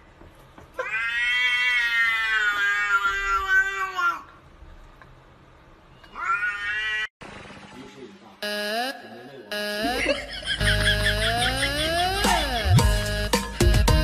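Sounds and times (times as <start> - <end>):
cat meowing: 0.8 - 4.3, 6.0 - 7.1.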